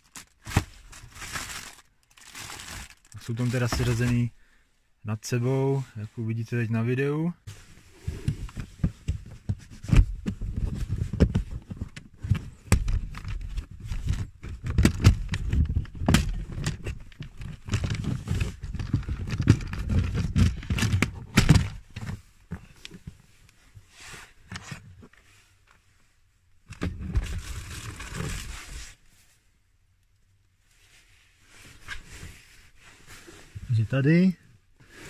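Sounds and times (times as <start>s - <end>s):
plastic rubbing and scraping: 0.0s - 4.3s, 7.5s - 23.2s, 26.7s - 29.0s.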